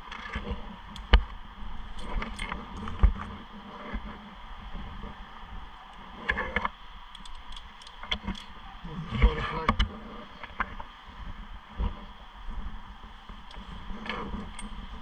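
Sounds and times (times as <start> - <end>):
sharp clicks: 5.9 - 8.6.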